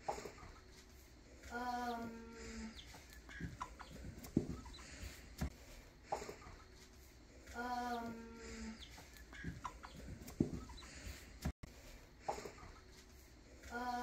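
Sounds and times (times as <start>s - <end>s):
chickens clucking: 1.8s - 7.0s, 7.9s - 11.5s, 12.2s - 13.0s.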